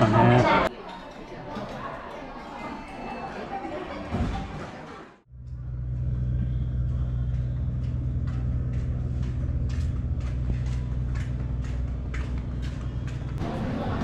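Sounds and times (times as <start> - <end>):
low engine hum: 5.3 - 13.9.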